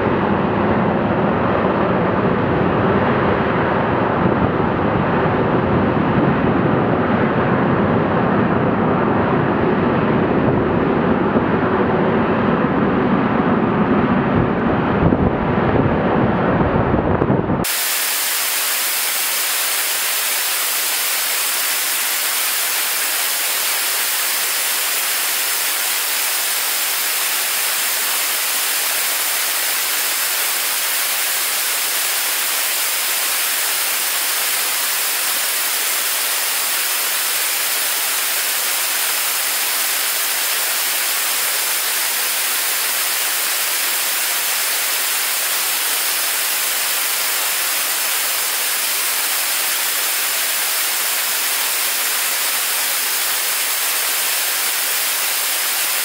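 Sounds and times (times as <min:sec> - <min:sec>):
rocket engine hissing: 0:17.6 - 0:56.0.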